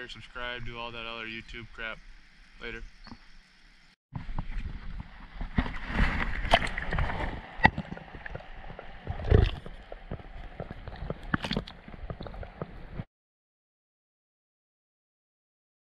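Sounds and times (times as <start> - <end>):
water sloshing underwater: 0.6 - 13.1
sharp splashes and knocks: 4.9 - 13.1.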